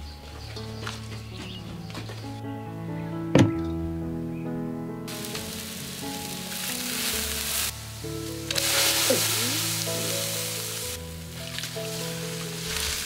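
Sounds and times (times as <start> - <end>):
background music: 0.0 - 13.0
boiling water hissing and bubbling: 5.1 - 13.0.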